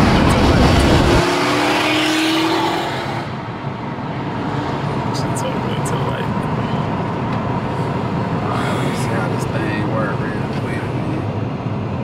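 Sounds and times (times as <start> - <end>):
car accelerating hard: 0.0 - 3.5.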